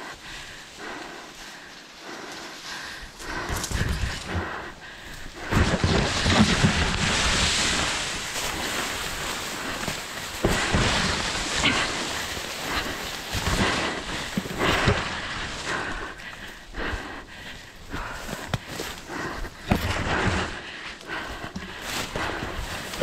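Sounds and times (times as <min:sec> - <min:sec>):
footfalls on forest floor: 0:03.2 - 0:23.0
tall grass swishing: 0:05.5 - 0:15.7.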